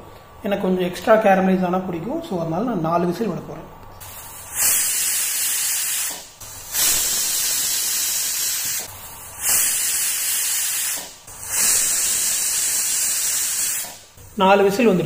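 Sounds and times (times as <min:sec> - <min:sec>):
pressure cooker whistle hissing: 0:04.0 - 0:14.1.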